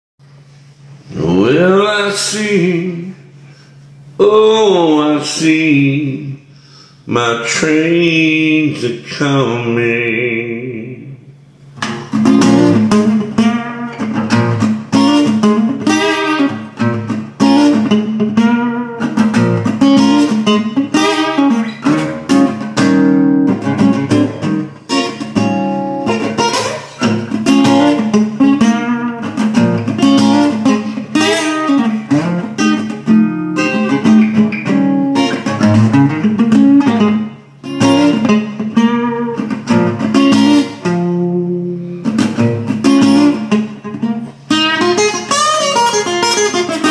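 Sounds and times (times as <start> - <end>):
solo acoustic guitar: 11.8 - 46.9.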